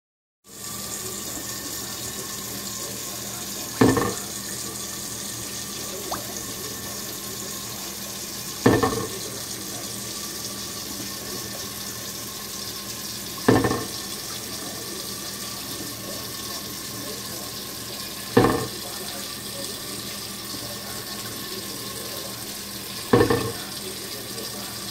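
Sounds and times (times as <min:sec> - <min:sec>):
tap water streaming onto glass lid: 0:00.8 - 0:24.8
lid clanking against sink: 0:03.8 - 0:04.3, 0:08.7 - 0:09.2, 0:13.5 - 0:14.0, 0:18.4 - 0:18.8, 0:23.1 - 0:23.6.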